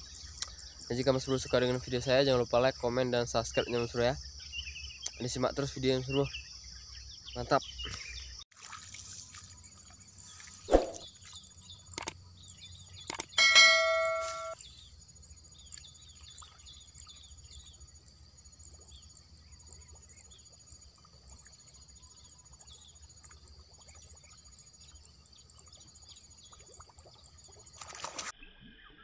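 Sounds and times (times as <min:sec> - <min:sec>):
high insect drone with ticks: 0:00.0 - 0:05.3, 0:11.2 - 0:13.4, 0:14.5 - 0:28.2
birds chirping: 0:00.0 - 0:08.4, 0:09.0 - 0:18.0
click and bell-like chime: 0:13.4 - 0:14.6.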